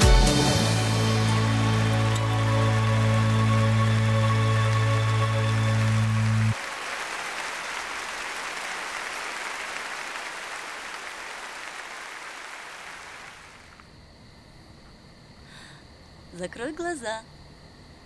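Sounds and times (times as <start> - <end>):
held music chord: 0.0 - 6.6
audience applauding: 0.0 - 13.8.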